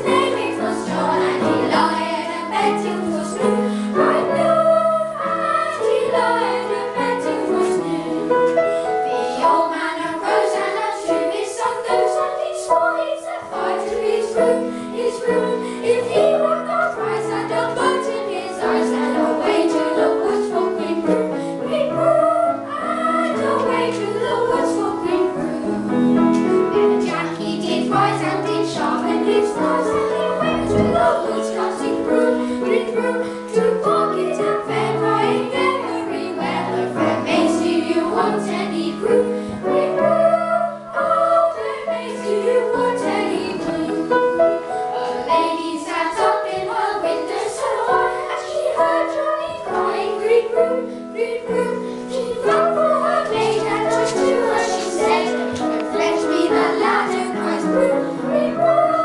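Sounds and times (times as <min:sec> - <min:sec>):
children's choir singing: 0:00.0 - 0:59.0.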